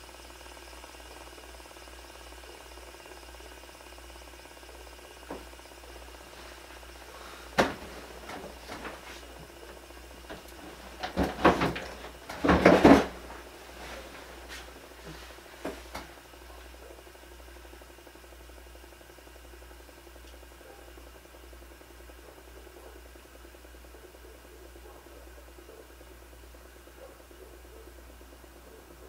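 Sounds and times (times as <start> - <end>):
knocks and clattering: 7.6 - 16.1.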